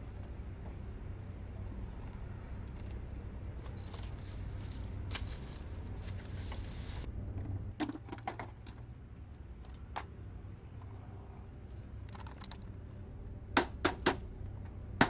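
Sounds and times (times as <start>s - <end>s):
steady low hum: 0.0s - 7.8s.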